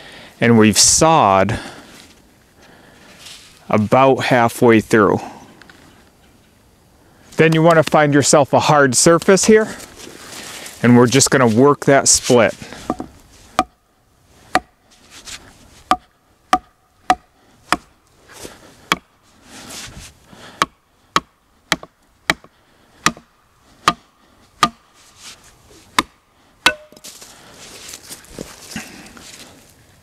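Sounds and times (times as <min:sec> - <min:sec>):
wood knocking against log: 0:12.8 - 0:13.8, 0:18.9 - 0:19.1, 0:20.6 - 0:24.0, 0:24.6 - 0:24.8, 0:26.7 - 0:27.1.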